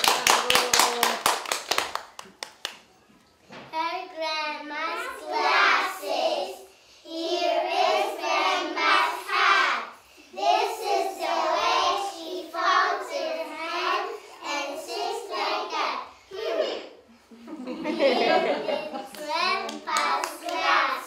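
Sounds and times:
young children singing: 4.6 - 16.9, 17.8 - 21.0.

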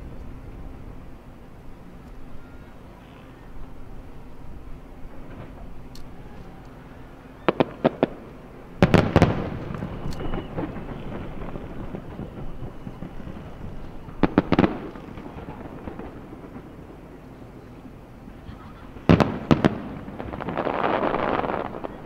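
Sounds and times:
firework bangs: 7.5 - 17.0, 18.8 - 22.0
echoing firework booms: 8.8 - 16.8, 19.0 - 22.0.

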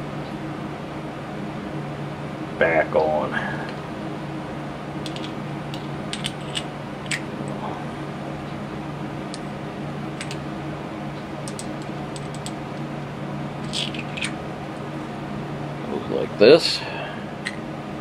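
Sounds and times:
steady low hum: 0.0 - 18.0
clicks of parts handled by hand: 5.0 - 7.6, 10.2 - 10.4, 11.4 - 12.6, 13.6 - 14.4.

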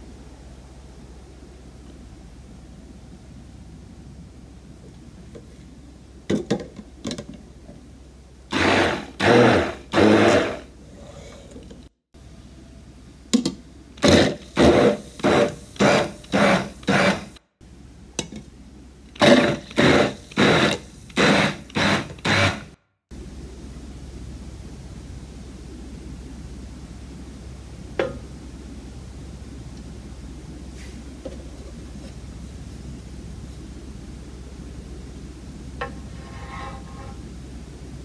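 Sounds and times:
immersion blender pulsing: 8.5 - 10.7, 14.0 - 17.4, 19.2 - 22.8.

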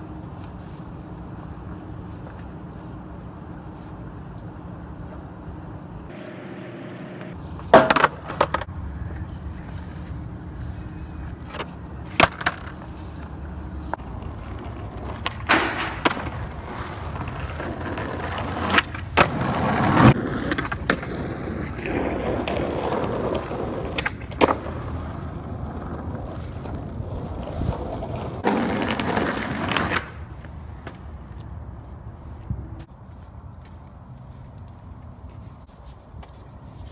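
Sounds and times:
skateboard wheels rolling on asphalt: 0.0 - 36.9
skateboard clacking: 6.1 - 9.7, 11.4 - 13.0, 14.2 - 30.3.

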